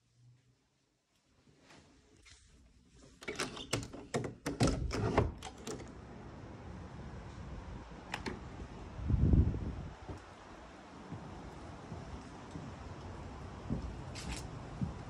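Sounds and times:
outdoor air hiss: 5.5s - 15.0s
door handle and latch clicking: 8.1s - 8.4s.

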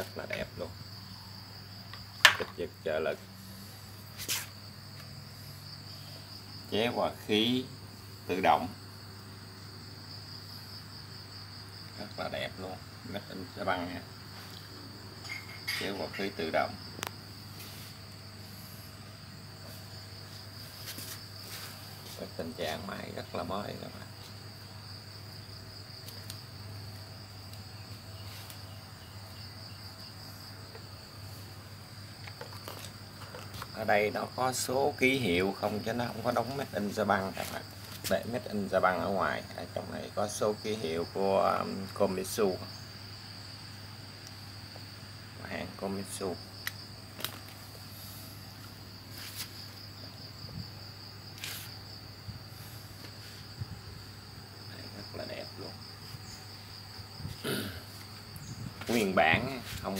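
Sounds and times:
crickets trilling: 0.0s - 59.9s
insects chirring: 0.0s - 59.9s.

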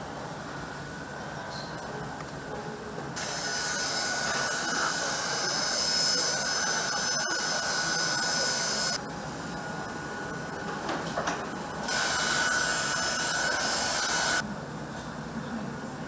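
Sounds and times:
workshop hum: 0.0s - 16.0s
hot-air gun whining: 3.2s - 9.0s, 11.2s - 14.4s.

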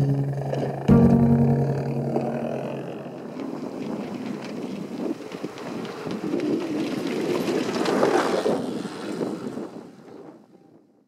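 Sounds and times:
wind buffeting microphone: 2.8s - 10.5s.

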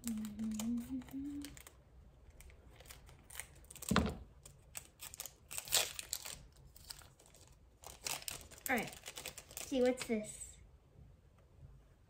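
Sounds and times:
scissors snipping wrapper: 2.4s - 10.1s
foil wrapper crinkling: 2.4s - 10.2s.

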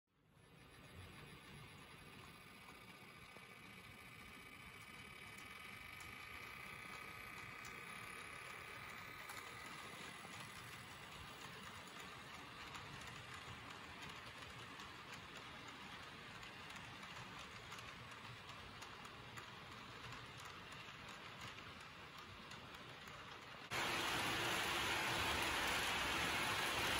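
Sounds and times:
model train wheels rolling hiss: 0.3s - 26.9s
locomotive motor whine: 23.7s - 26.9s.

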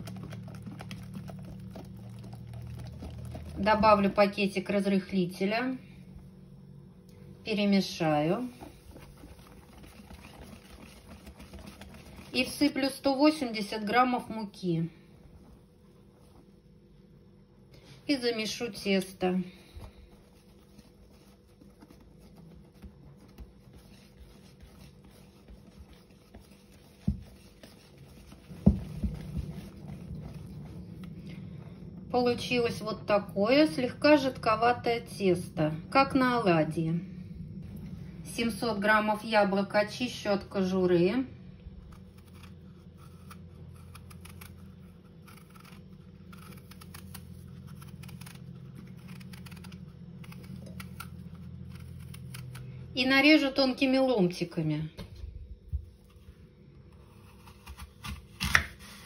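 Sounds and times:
steady low hum: 0.0s - 59.0s
knife peeling apple: 8.3s - 14.4s, 18.0s - 31.6s, 41.7s - 53.5s, 55.8s - 59.0s.

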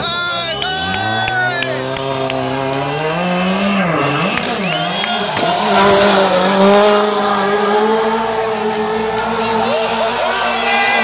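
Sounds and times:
tyres squealing on tarmac: 0.0s - 6.4s
rally car engine revving: 0.0s - 11.0s.

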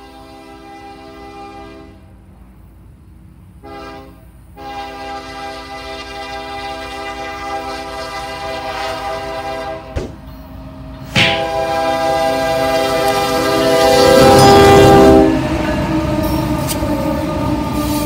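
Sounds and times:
locomotive air horn blasts: 0.0s - 2.1s, 3.6s - 10.0s, 11.0s - 15.4s
freight train rumbling: 0.0s - 18.0s.

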